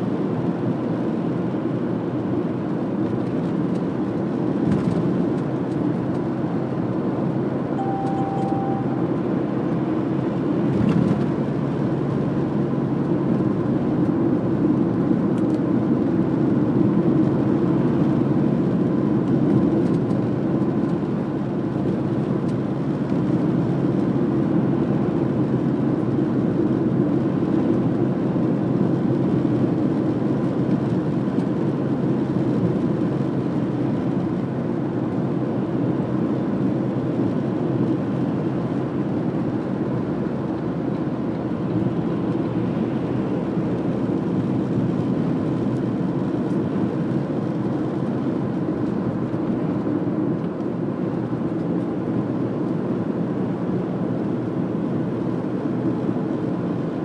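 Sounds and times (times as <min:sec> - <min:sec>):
car driving rumble: 0:37.2 - 0:51.6.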